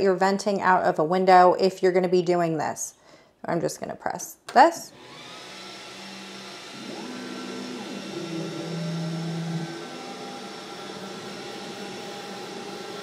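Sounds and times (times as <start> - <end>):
fans humming: 5.0 - 13.0
stepper motors whining: 5.0 - 13.0.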